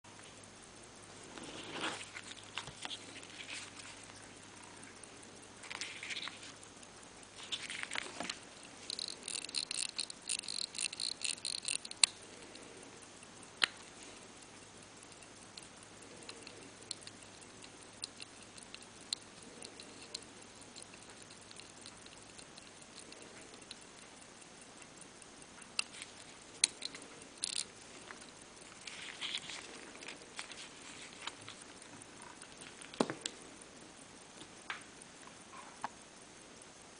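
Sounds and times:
watch crown ratchet clicks: 0:05.6 - 0:33.4.

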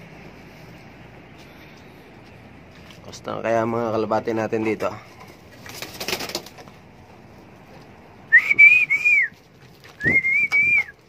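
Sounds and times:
person whistling long notes: 0:08.3 - 0:09.3, 0:10.0 - 0:11.0.

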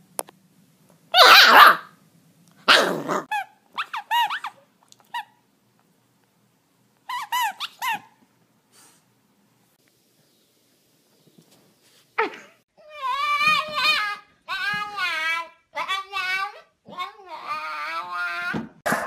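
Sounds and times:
puppy yipping: 0:01.1 - 0:01.9, 0:02.7 - 0:05.4, 0:07.1 - 0:08.2
puppy barking: 0:01.1 - 0:02.0, 0:02.6 - 0:04.6.

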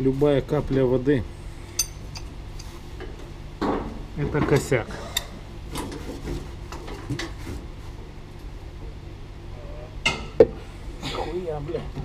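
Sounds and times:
steady low hum: 0:00.0 - 0:12.0
metal knocks and clinks: 0:01.7 - 0:02.3
sharp metal clank: 0:01.7 - 0:02.3.

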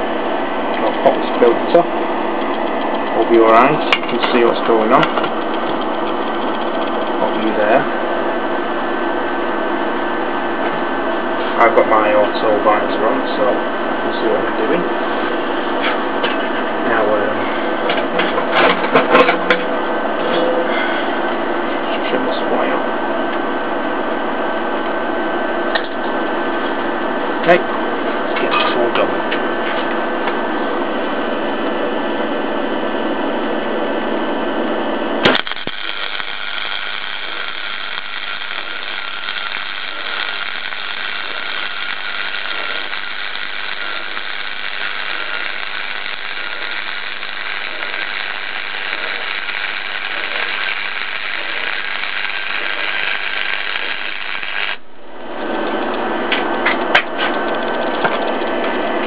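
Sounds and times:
welding arc sizzling: 0:00.0 - 0:17.8, 0:35.0 - 0:59.0
steady mechanical running: 0:00.0 - 0:59.0
clicks: 0:02.4 - 0:03.2, 0:05.0 - 0:07.5, 0:35.2 - 0:59.0
welder arc strike click: 0:35.2 - 0:54.8.

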